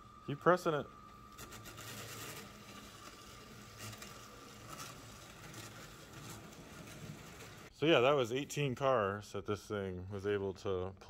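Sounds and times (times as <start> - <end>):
toy train motor whining: 1.3 - 7.7
plastic wheels clicking on track: 1.4 - 7.7.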